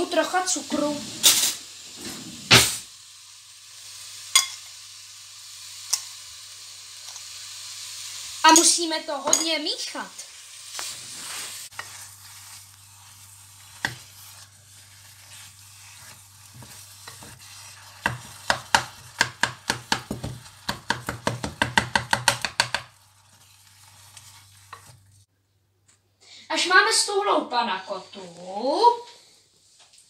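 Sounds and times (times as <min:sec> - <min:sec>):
soft sizzle: 0:00.0 - 0:25.3, 0:26.2 - 0:30.0
wooden spoon stirring in pot: 0:08.1 - 0:25.3
spoon knocking against pot: 0:18.0 - 0:22.9.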